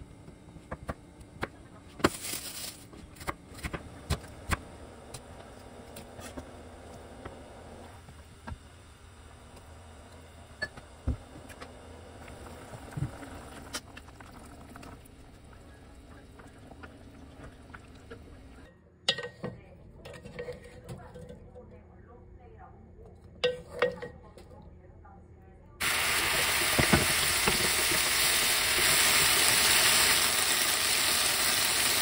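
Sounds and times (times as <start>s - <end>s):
stew bubbling in a pot: 5.1s - 18.7s.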